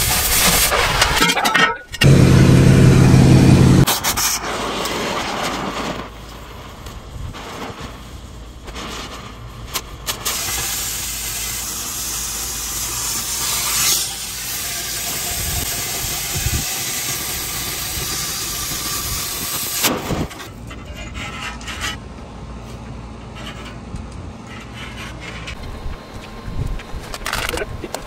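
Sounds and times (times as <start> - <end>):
cutting torch hissing: 2.0 - 20.5.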